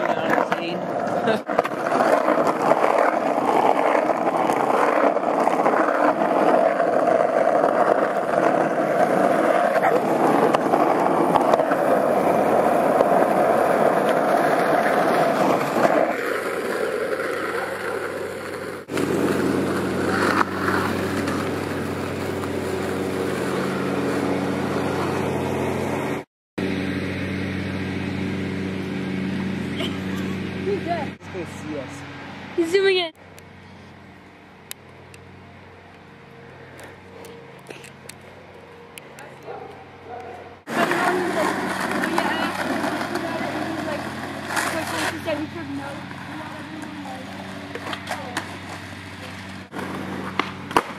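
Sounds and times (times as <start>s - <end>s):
skateboard wheels rolling on asphalt: 0.0s - 26.7s, 27.3s - 50.9s.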